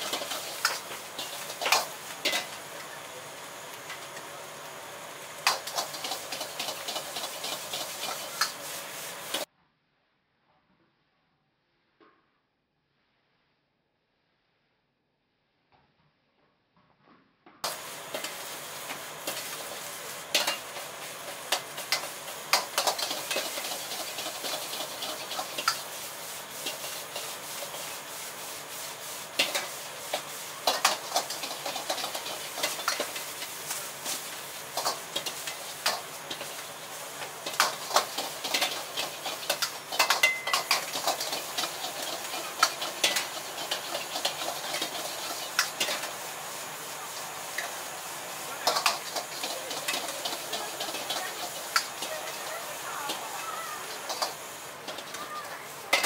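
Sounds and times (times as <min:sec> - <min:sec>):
metal ladle scraping a wok: 0:00.0 - 0:02.9, 0:05.4 - 0:09.4, 0:18.1 - 0:46.2, 0:48.6 - 0:55.2
food sizzling: 0:00.0 - 0:09.5, 0:17.6 - 0:56.0
gas burner hiss: 0:00.0 - 0:09.5, 0:17.6 - 0:56.0.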